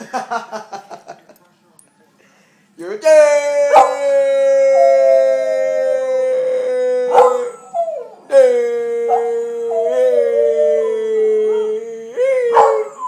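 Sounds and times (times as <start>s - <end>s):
dog howling: 3.6s - 13.0s.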